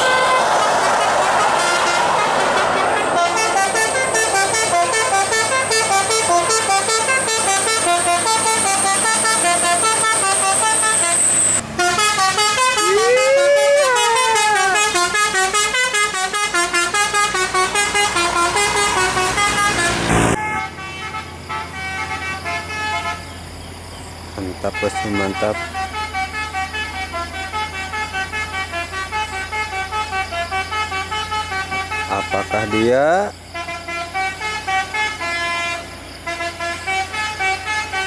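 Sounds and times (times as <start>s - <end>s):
musical air horn playing tune: 0.0s - 23.2s, 33.6s - 38.0s.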